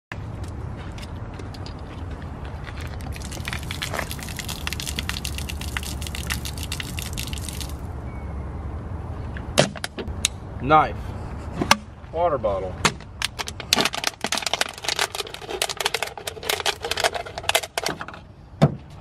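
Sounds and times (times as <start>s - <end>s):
water splashing onto asphalt: 2.8s - 7.9s.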